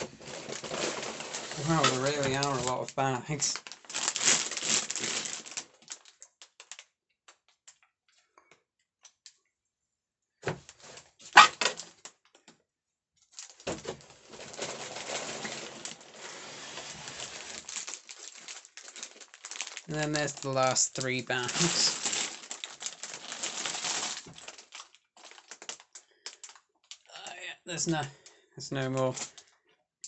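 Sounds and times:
plastic bags crinkling: 0.0 - 7.8, 13.3 - 27.2, 28.0 - 29.6.

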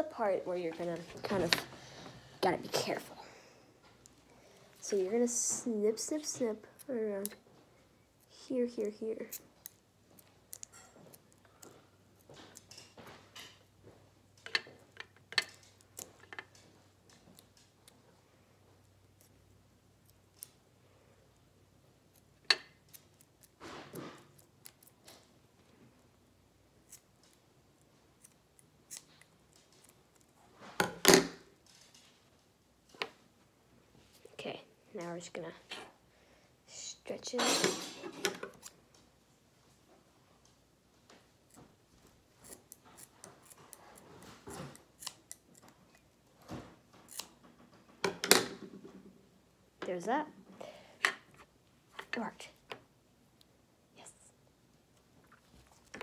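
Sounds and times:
scissors snipping rubber: 42.4 - 46.0.

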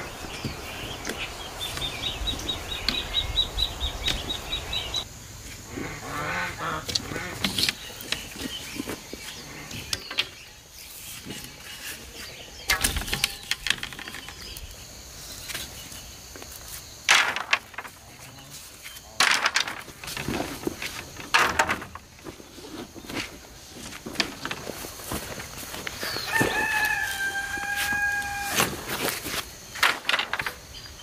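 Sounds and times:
bamboo poles clattering: 6.8 - 10.4, 11.0 - 14.7, 16.4 - 31.0.

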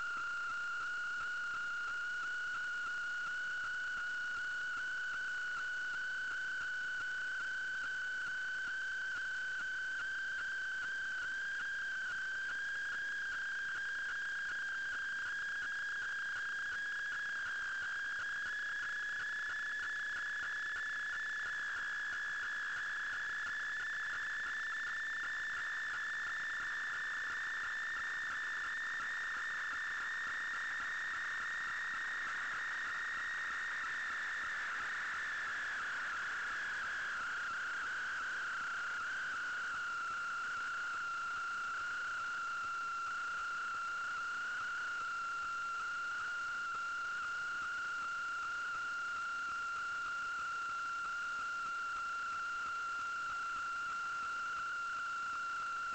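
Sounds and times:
high-pitched electronic whine: 0.0 - 55.9.

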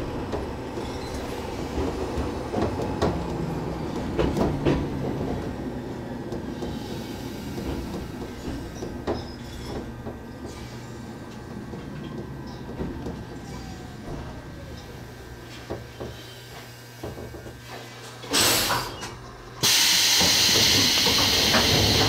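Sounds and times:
pneumatic air hiss: 18.3 - 22.0.

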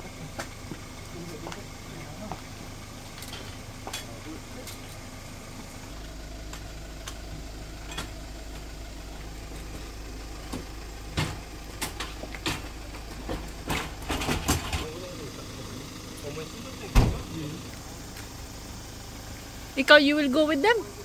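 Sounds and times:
engine idling: 0.0 - 21.0
sharp knocks and clatters: 10.4 - 14.9.

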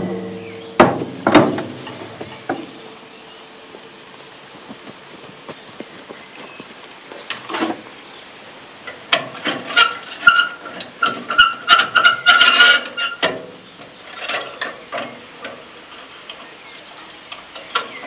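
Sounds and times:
metal parts clanking and scraping: 8.9 - 16.5.

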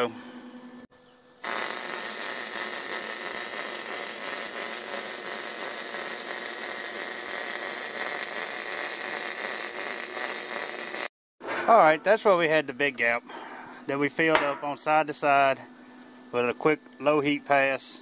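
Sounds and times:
welding arc crackling hiss: 1.4 - 11.1.

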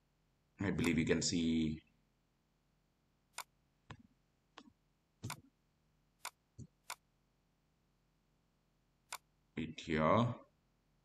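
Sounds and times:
mouse clicks: 0.8 - 1.0, 4.6 - 5.5, 9.1 - 9.3.

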